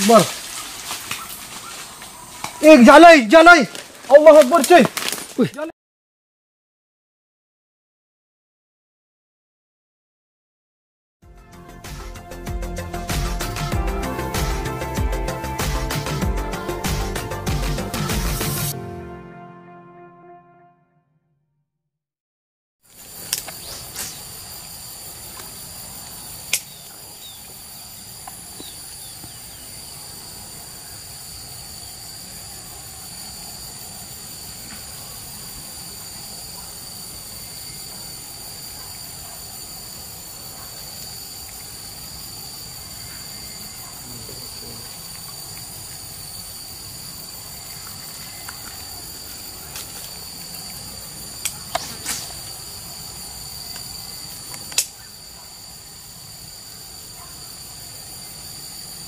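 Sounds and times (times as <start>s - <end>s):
insects droning: 0.0s - 5.7s, 11.6s - 18.7s, 22.9s - 59.0s
sharp click: 51.4s - 52.3s.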